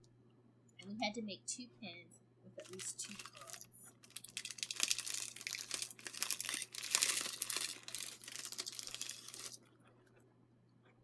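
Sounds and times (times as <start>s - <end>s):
plastic bag crinkling: 2.6s - 9.8s.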